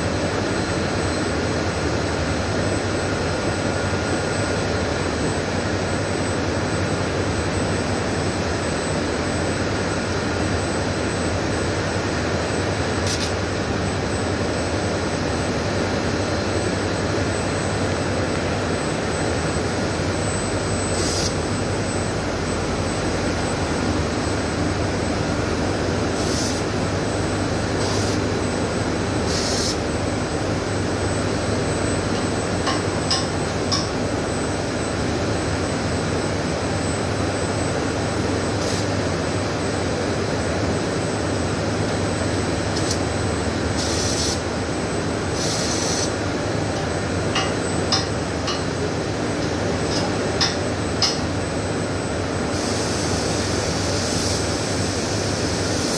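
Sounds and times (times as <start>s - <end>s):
high steady whine: 0.0s - 55.9s
welding sizzles: 13.0s - 13.4s, 20.9s - 21.4s, 26.1s - 26.7s, 27.7s - 28.3s, 29.2s - 29.8s, 38.5s - 39.2s, 42.6s - 43.1s, 43.7s - 44.5s, 45.3s - 46.2s.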